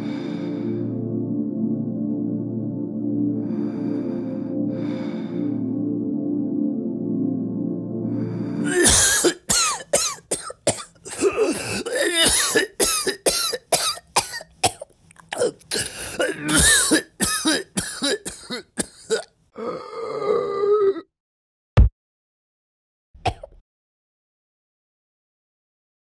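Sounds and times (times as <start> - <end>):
strained throat sound: 8.5 - 12.8, 14.7 - 21.1
man coughing and hacking: 8.6 - 19.8, 23.2 - 23.6.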